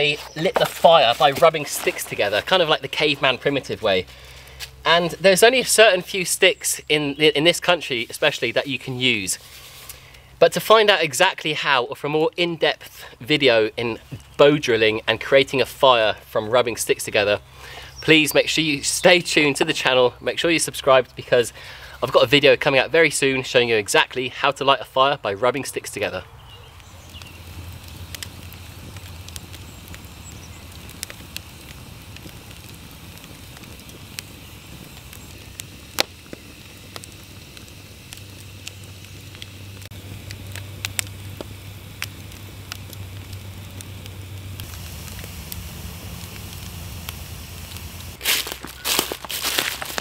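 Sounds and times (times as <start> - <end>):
footsteps crunching dry leaves: 0.0 - 4.9, 44.5 - 50.0
campfire crackling and popping: 0.0 - 50.0.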